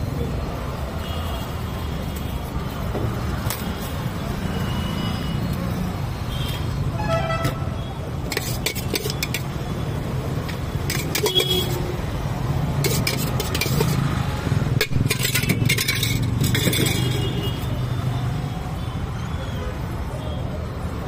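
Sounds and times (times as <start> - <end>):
road traffic hum: 0.0 - 21.0
metal pots and plates clinking: 8.2 - 9.6, 10.4 - 11.9, 12.8 - 14.0, 14.8 - 17.5.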